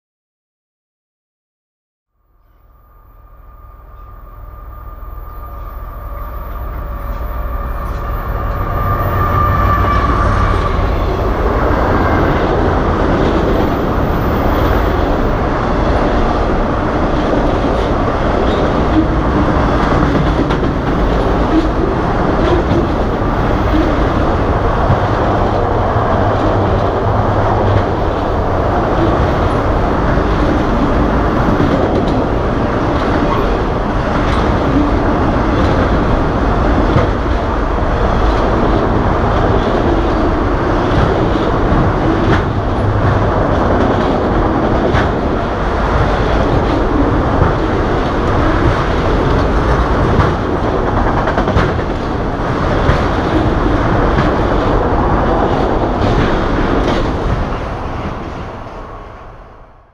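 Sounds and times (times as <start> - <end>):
thin whine: 2.1 - 14.6
freight train passing: 2.1 - 59.9
train wheels on rails: 3.5 - 59.8.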